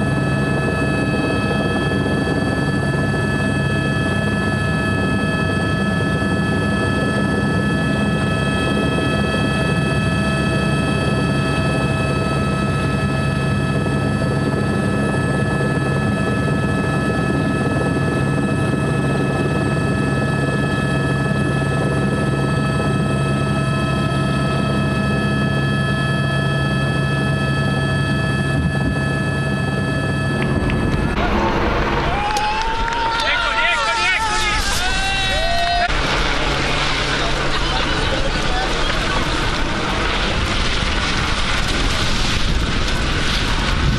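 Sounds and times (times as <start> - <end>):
helicopter low drone: 0.0 - 43.9
high whining tones: 26.9 - 40.4.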